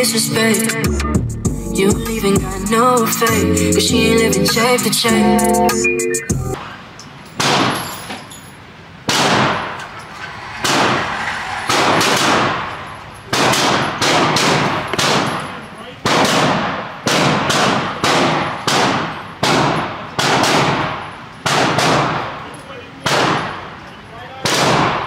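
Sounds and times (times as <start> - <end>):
gunshots echoing: 9.1 - 9.9.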